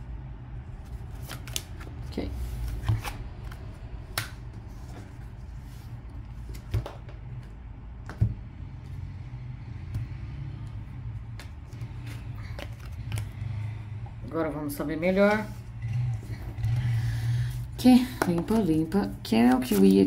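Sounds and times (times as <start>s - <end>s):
steady low hum: 0.0s - 20.0s
cards tapping and slapping on table: 6.5s - 8.4s.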